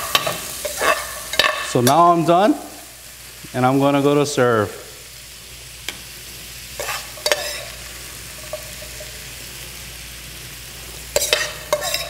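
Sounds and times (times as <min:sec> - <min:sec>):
metal utensils scraping a pan: 0:00.0 - 0:02.1, 0:06.8 - 0:09.2, 0:11.1 - 0:12.0
vegetables sizzling in a pan: 0:00.0 - 0:12.0.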